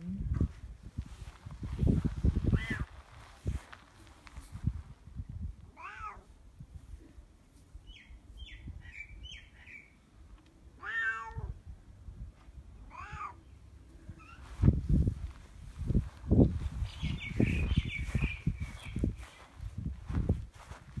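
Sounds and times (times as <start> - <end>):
cat meowing: 2.5 - 2.9, 5.8 - 6.3, 10.8 - 11.6, 12.9 - 13.4.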